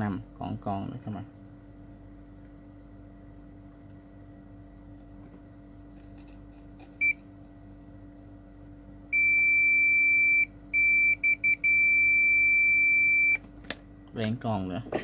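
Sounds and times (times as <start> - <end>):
multimeter continuity beeps: 7.0 - 7.2, 9.1 - 13.4.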